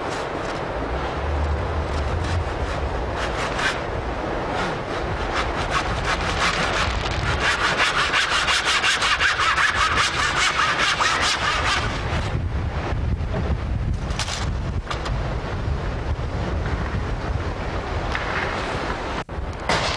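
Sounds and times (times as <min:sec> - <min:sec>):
handsaw cutting wooden boards: 0:01.9 - 0:03.8, 0:04.5 - 0:12.2.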